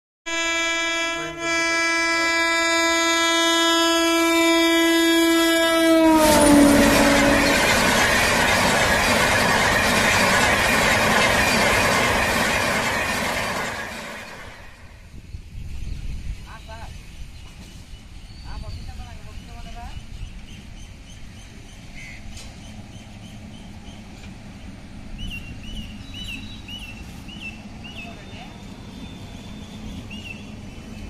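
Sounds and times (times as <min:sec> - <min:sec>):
locomotive horn blast: 0:00.3 - 0:07.8
train coaches roaring past: 0:00.3 - 0:15.2, 0:16.9 - 0:31.0.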